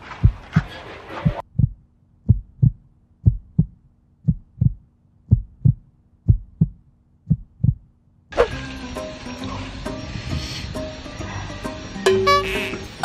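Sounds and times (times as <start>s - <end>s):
heartbeat thumps: 0.1s - 7.9s.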